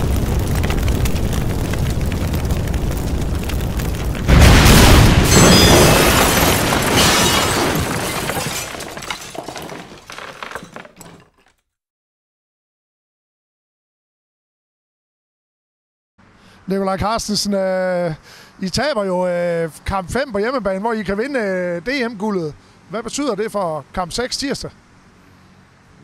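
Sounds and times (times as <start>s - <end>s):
loud boom with crackles: 0.0s - 8.3s.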